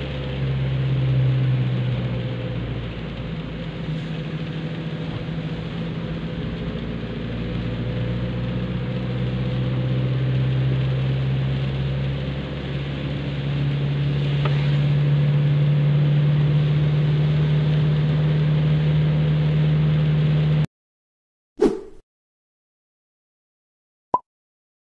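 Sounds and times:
car engine running: 0.0 - 18.4
tyres on wet road: 0.0 - 20.6.

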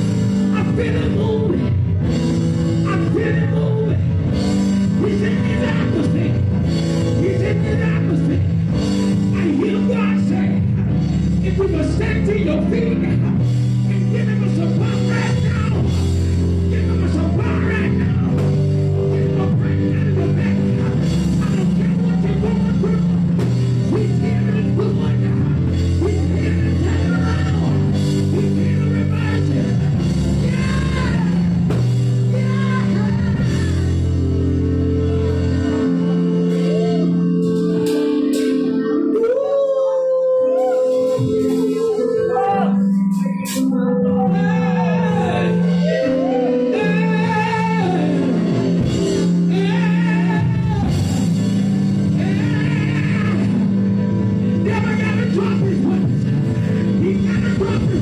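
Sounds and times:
drums: 0.0 - 39.5, 40.5 - 43.8, 47.0 - 58.0
church band playing: 0.0 - 58.0
man singing through microphone: 0.4 - 1.8, 2.8 - 4.2, 16.6 - 34.3, 39.2 - 42.9, 44.1 - 51.4, 52.1 - 58.0.

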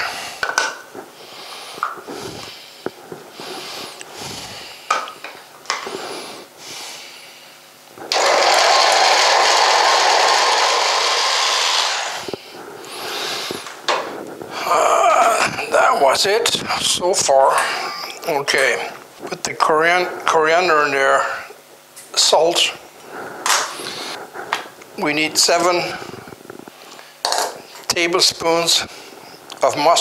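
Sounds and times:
electric food chopper running: 8.1 - 13.8.

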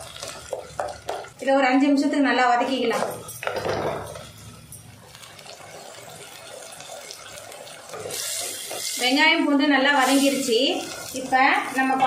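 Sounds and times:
wooden spatula stirring: 0.0 - 1.4, 5.7 - 12.0
shallots and garlic sizzling in oil: 0.0 - 12.0.

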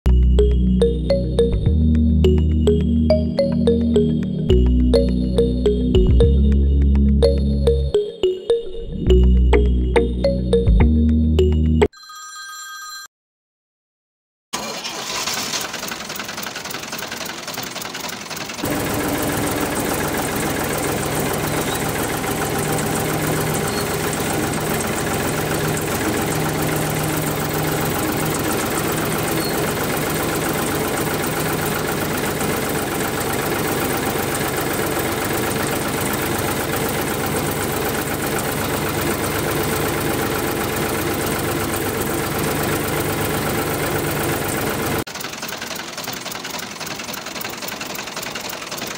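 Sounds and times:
tractor engine idling: 14.6 - 48.9.

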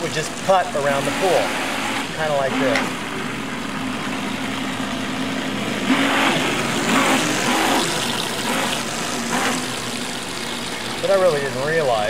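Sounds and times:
electric motor whining: 5.6 - 11.2.

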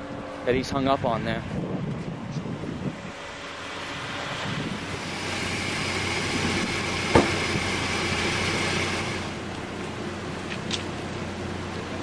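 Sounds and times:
motor vehicle engine running: 0.0 - 12.0
sharp knock: 7.1 - 7.6.

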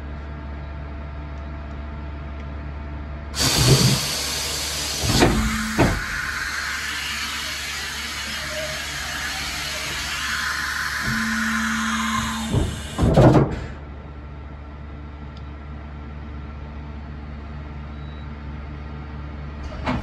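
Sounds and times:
machine hum: 3.3 - 16.8
loud steady hiss: 3.4 - 13.2.

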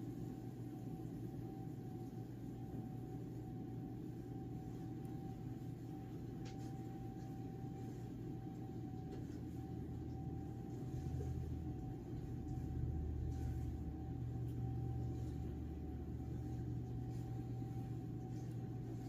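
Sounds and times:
low room hum and rumble: 0.0 - 19.0
thin steady whine: 0.0 - 19.0.

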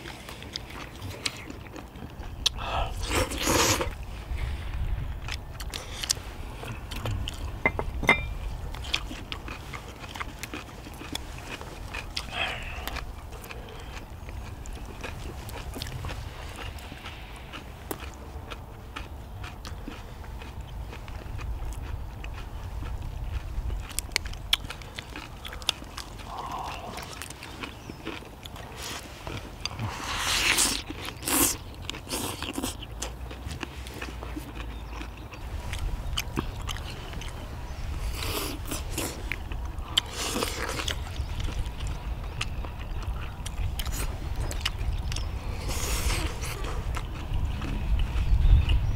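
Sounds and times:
chewing with mouth smacks: 0.0 - 48.9
loud slurps: 2.8 - 4.0, 29.7 - 32.7.

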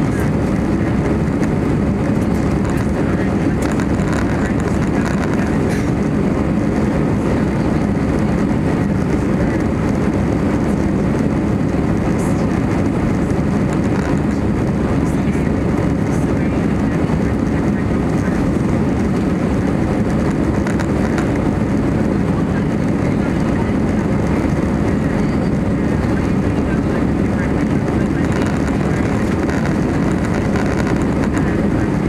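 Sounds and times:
airplane cabin engine rumble: 0.0 - 32.0.

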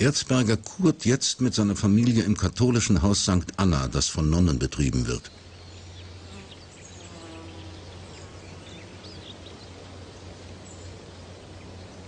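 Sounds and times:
low steady hum: 0.0 - 12.0
insects buzzing: 4.7 - 12.0.

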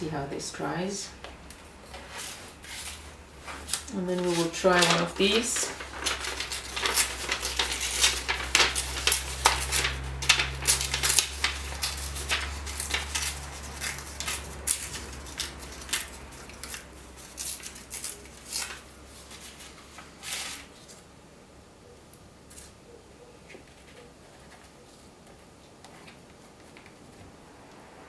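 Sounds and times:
paper rustling and crackling: 1.6 - 21.1.

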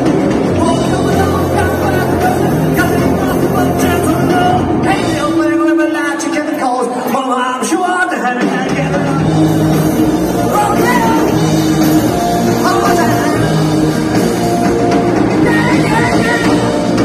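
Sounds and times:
electric guitar: 0.0 - 7.1, 8.4 - 17.0
rock band playing live: 0.0 - 17.0
person singing: 12.4 - 14.0, 15.3 - 17.0.

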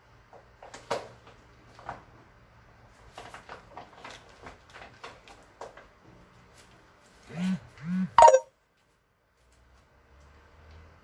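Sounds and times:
short low hums: 7.3 - 8.4.

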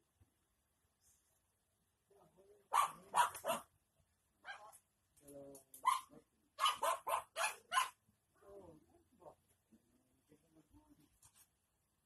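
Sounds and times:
dog barking: 2.7 - 3.7, 4.4 - 4.8, 5.8 - 8.0.

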